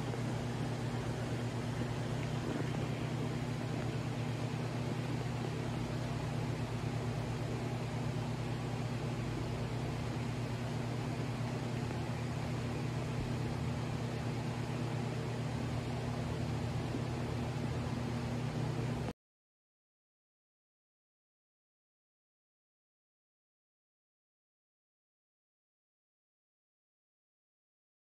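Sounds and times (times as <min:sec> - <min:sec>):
low electrical hum: 0:00.0 - 0:19.1.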